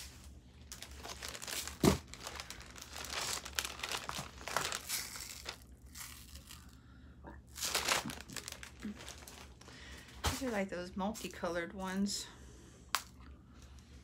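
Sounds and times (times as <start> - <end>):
plastic bag crinkling: 0.0 - 6.8, 7.5 - 11.4.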